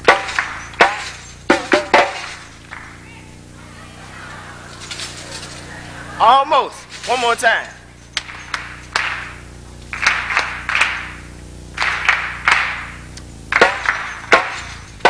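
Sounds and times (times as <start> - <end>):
audience clapping a rhythm: 0.0 - 15.0
hand drum strikes: 0.1 - 2.4.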